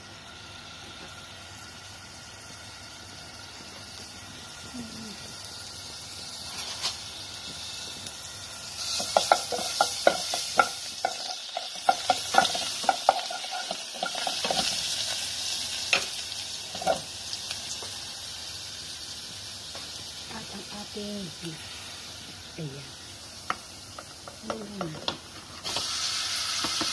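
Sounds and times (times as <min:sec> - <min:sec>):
garlic sizzling in hot oil: 0:00.0 - 0:26.9
wooden spatula knocking on pan: 0:09.0 - 0:14.6.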